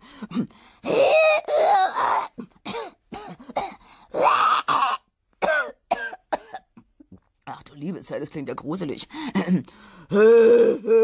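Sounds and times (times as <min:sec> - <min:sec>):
woman coughing and throat-clearing: 0:00.9 - 0:03.8, 0:04.6 - 0:06.9, 0:09.3 - 0:09.7.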